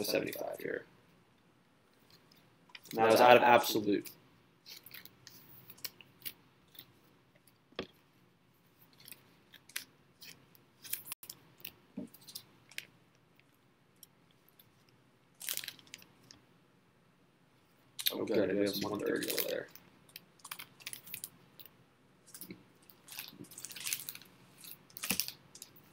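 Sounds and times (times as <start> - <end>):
trading cards clicking and crinkling: 4.0 - 8.0, 8.8 - 16.4, 18.0 - 25.9.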